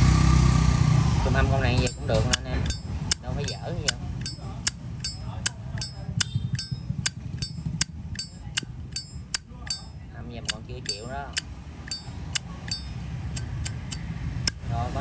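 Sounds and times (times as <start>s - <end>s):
lighter lid metallic clicks: 10.5s - 14.0s.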